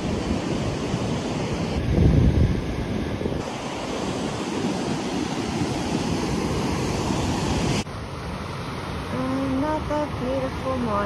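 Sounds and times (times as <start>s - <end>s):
wind buffeting microphone: 0.0s - 7.9s
surf washing onto beach: 3.3s - 11.0s.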